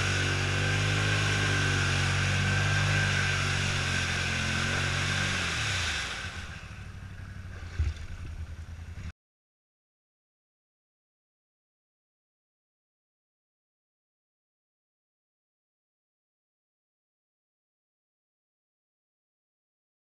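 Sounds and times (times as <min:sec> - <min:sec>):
atv engine running: 0:00.0 - 0:09.1
vehicle churning through muddy water: 0:00.0 - 0:09.1.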